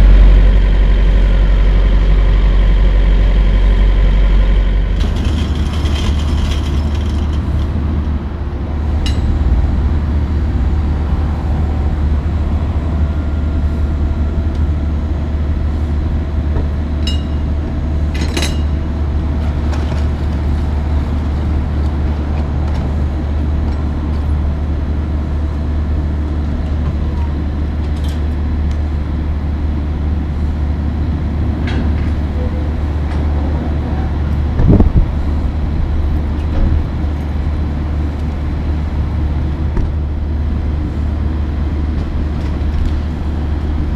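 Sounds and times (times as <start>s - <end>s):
diesel truck idling: 0.0s - 27.7s.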